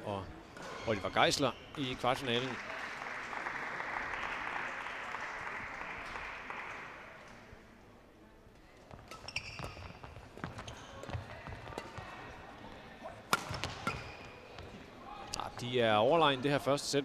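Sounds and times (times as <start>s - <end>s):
crowd applause: 2.3s - 7.2s
rackets hitting shuttlecock: 8.9s - 12.2s, 13.3s - 14.4s
short high squeaks: 9.2s - 9.9s.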